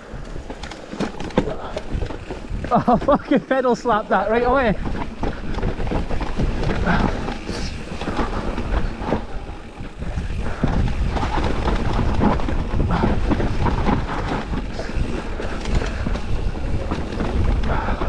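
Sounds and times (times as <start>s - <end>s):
bike knocks and rattles: 0.0s - 18.0s
tyres rumbling over dirt: 0.0s - 18.0s.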